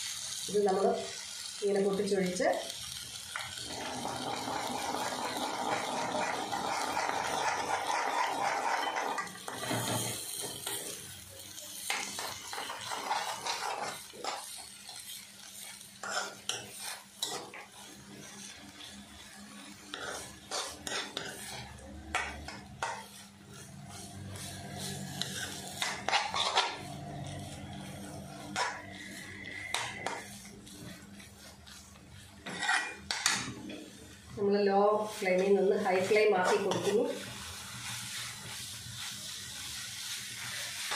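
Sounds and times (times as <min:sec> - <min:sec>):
food sizzling in a pan: 0:00.0 - 0:40.9
spoon scraping a metal pan: 0:03.8 - 0:11.0, 0:11.8 - 0:14.7, 0:15.6 - 0:17.7, 0:19.9 - 0:31.8, 0:32.4 - 0:33.5, 0:35.2 - 0:37.2.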